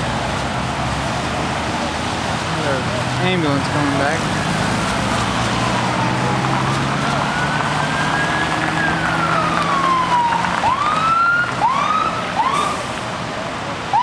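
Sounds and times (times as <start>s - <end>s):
vehicle engine humming: 0.0s - 14.0s
ambulance siren wailing: 4.4s - 13.0s.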